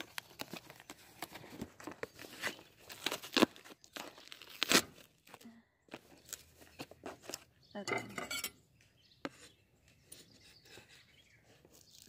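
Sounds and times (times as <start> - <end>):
cardboard box being torn open: 0.0 - 5.4.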